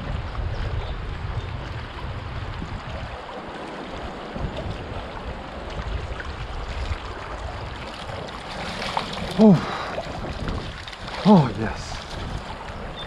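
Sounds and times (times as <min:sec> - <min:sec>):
wind rumbling on microphone: 0:00.0 - 0:13.0
river water rushing: 0:03.0 - 0:13.0.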